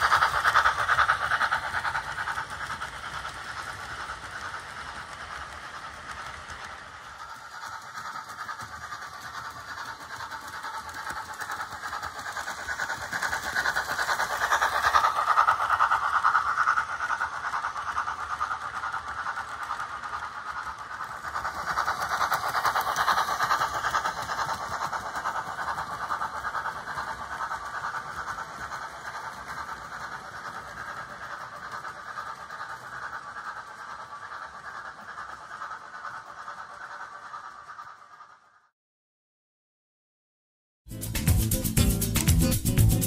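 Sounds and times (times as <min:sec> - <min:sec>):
model train running on track: 0:00.0 - 0:38.7, 0:40.9 - 0:43.0.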